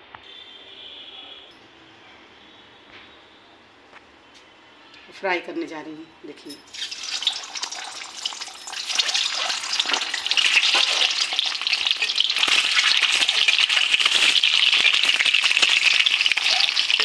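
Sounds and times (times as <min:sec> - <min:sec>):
eggs sizzling in hot oil: 0:06.7 - 0:17.0.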